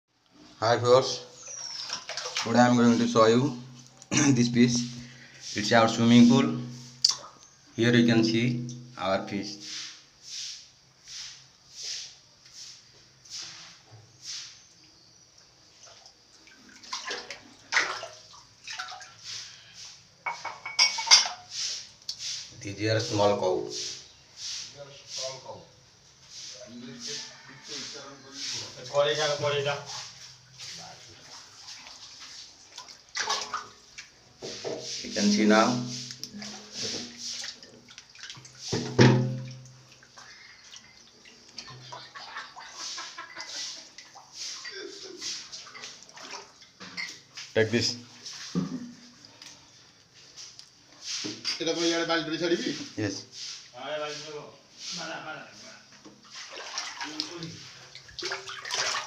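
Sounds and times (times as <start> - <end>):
water splashing on tiled floor: 1.4 - 7.6, 9.6 - 14.6, 15.7 - 25.3, 26.2 - 59.0
knock: 38.8 - 39.5.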